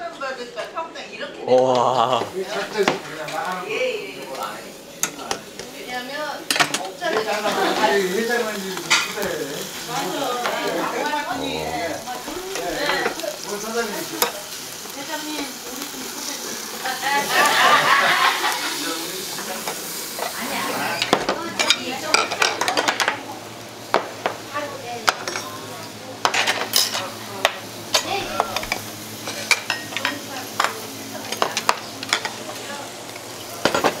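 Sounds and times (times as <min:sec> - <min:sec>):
meat sizzling on a grill: 0:01.9 - 0:34.0
metal tongs clinking on grate: 0:08.8 - 0:09.3, 0:14.1 - 0:14.4, 0:25.1 - 0:25.5, 0:26.2 - 0:27.1, 0:27.9 - 0:32.4.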